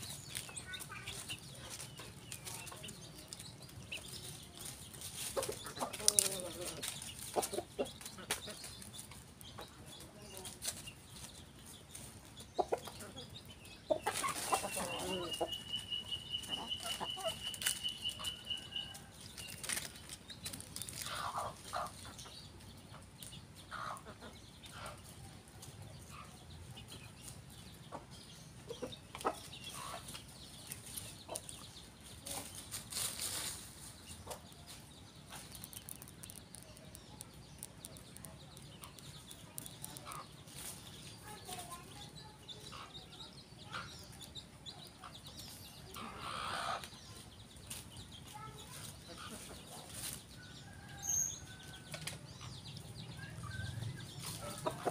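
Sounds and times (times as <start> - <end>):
dry leaves rustling: 0.0 - 12.4, 14.0 - 22.1, 29.7 - 42.0, 47.5 - 50.5
chickens clucking: 0.0 - 54.9.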